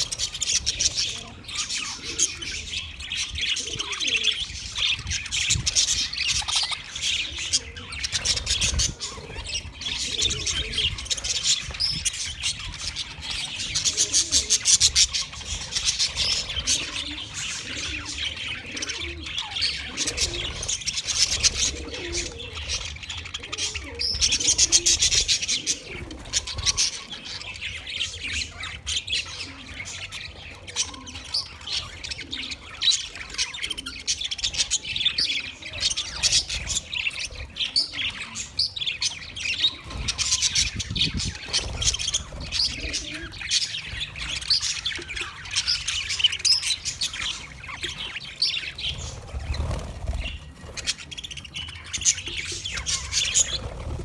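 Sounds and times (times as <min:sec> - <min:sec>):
budgerigars chirping: 0:00.0 - 0:54.0.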